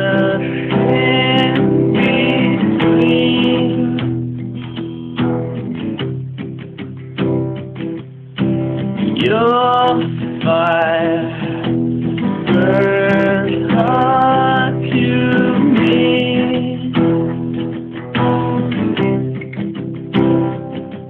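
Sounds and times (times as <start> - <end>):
man singing: 0.0 - 4.6, 9.0 - 17.4
acoustic guitar strumming: 0.0 - 21.0.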